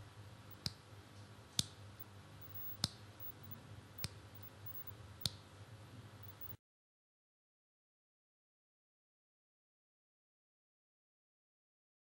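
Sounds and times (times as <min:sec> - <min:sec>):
faint low hum: 0:00.0 - 0:06.6.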